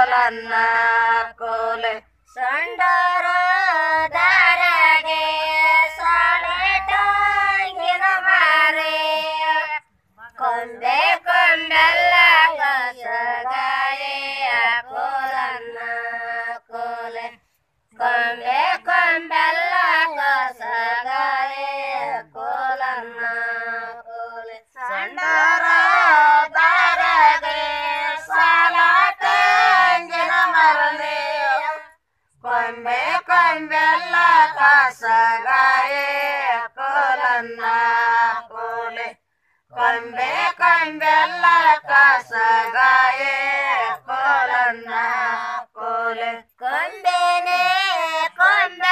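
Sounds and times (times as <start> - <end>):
women singing folk song unaccompanied: 0.0 - 48.9.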